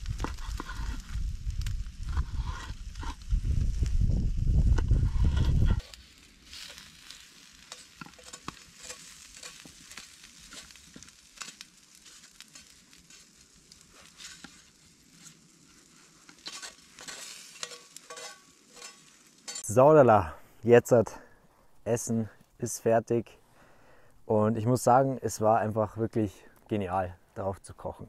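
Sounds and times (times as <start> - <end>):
food sizzling in a frying pan: 0.0 - 19.6
wooden stick scraping food: 0.2 - 1.2, 2.0 - 3.2, 4.7 - 19.6.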